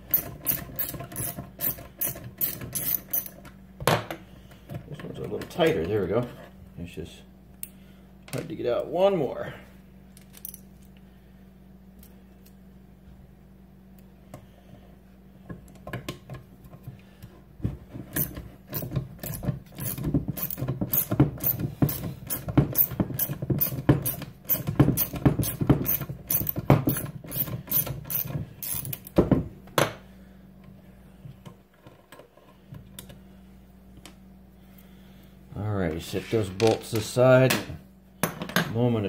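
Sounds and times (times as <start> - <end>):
ratchet wrench clicking: 19.2 - 22.0, 22.8 - 29.1.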